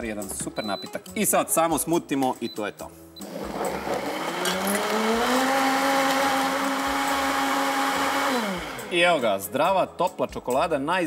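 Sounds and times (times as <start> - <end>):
blender motor whine: 3.2 - 9.2.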